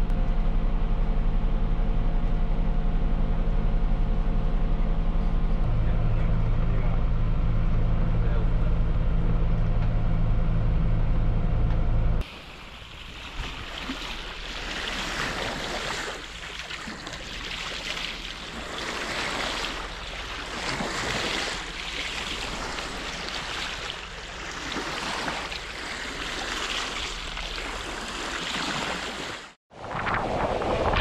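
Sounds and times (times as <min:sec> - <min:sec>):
seawater splashing past boat hull: 0:12.2 - 0:31.0.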